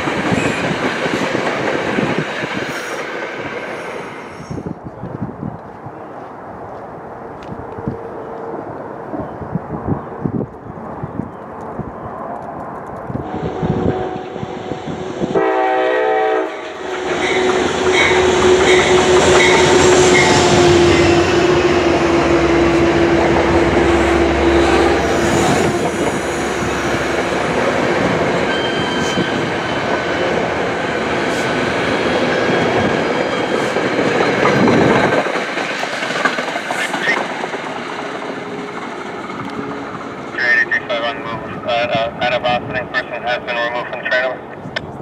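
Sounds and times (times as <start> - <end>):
train rolling rumble: 0.0 - 45.0
train horn blast: 13.2 - 27.6.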